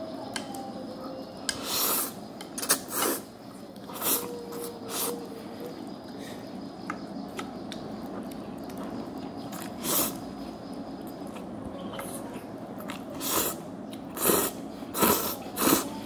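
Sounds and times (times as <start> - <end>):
noodles being slurped: 13.0 - 15.9.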